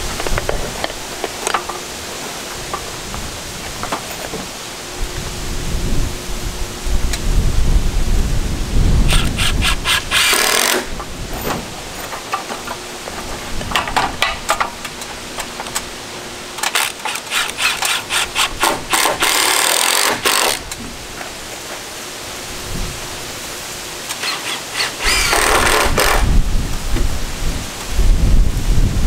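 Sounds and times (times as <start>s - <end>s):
hand saw cutting wood: 9.1s - 11.0s, 16.6s - 20.7s, 24.0s - 26.3s.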